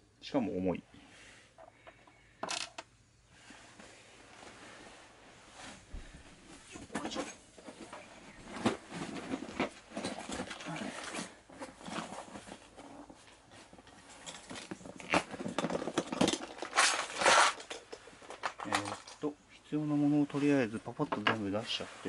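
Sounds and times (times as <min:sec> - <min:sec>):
small parts and packaging rustling: 0:01.5 - 0:02.9, 0:05.7 - 0:19.3.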